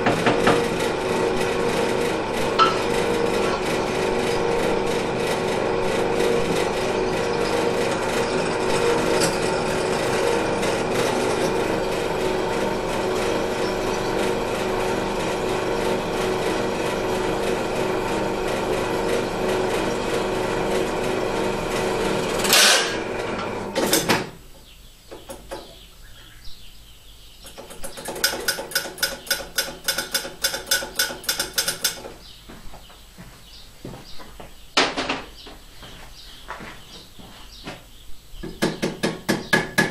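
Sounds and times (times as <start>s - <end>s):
loud knocks: 0.0s - 0.7s
drill press motor running: 0.0s - 24.4s.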